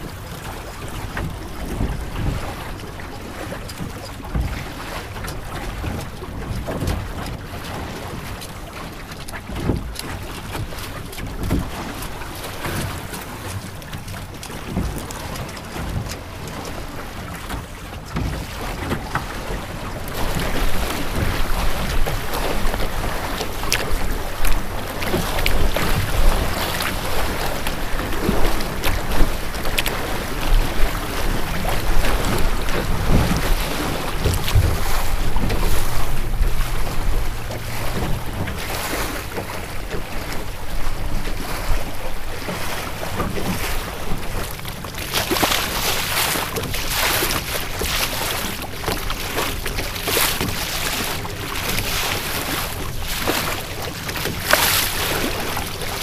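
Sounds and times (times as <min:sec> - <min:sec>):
water splashing against hull: 0:00.0 - 0:56.0
wind buffeting microphone: 0:09.4 - 0:44.9.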